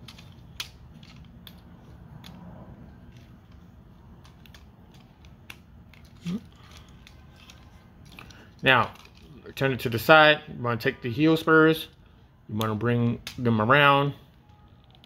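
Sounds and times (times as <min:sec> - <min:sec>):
plastic toy parts clicking: 0:00.0 - 0:02.4, 0:04.2 - 0:09.4, 0:14.6 - 0:15.0.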